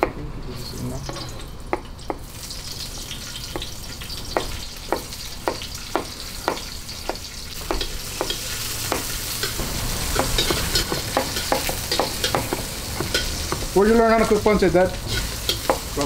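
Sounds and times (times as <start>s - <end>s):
onion sizzling in hot oil: 0.6s - 16.0s
metal ladle scraping wok: 7.8s - 16.0s.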